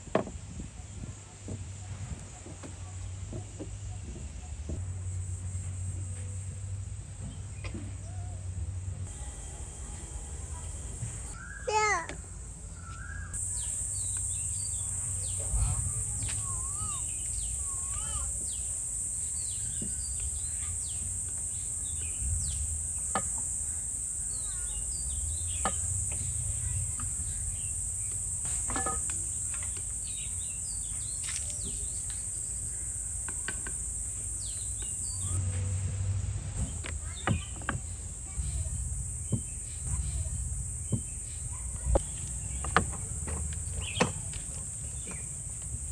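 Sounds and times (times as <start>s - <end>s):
birds chirping: 9.1s - 28.5s, 36.6s - 45.8s
high-pitched insect drone: 13.4s - 35.7s.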